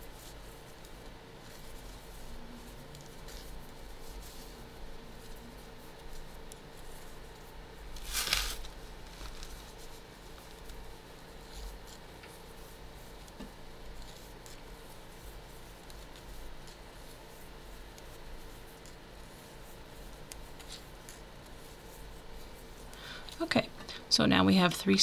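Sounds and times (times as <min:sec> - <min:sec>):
short rustle: 0:08.0 - 0:10.0.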